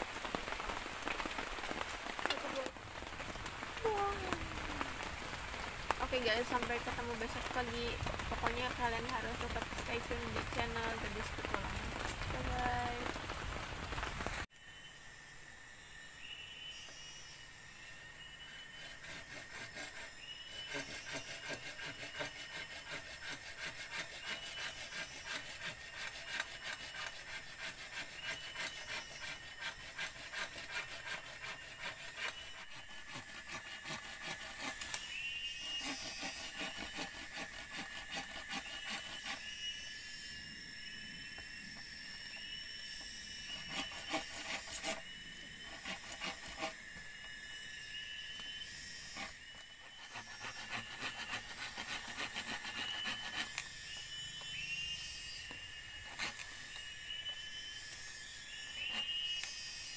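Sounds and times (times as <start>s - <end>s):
wood being scraped: 18.5s - 39.5s, 43.4s - 47.0s, 49.0s - 53.7s, 55.5s - 57.4s, 58.6s - 59.5s.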